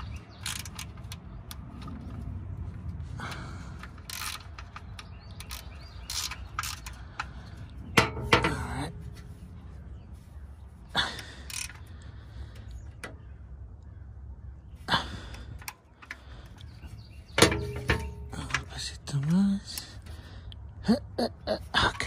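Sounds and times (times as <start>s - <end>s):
ratchet wrench clicking: 0.0s - 2.0s, 3.8s - 7.4s, 11.4s - 11.8s.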